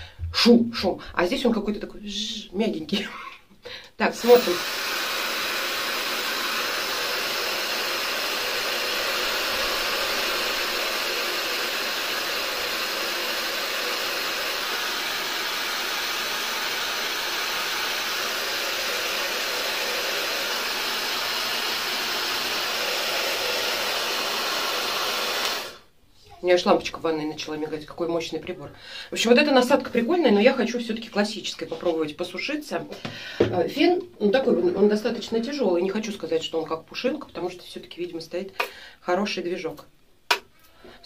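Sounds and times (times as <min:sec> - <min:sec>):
hair dryer running: 0:04.2 - 0:25.9.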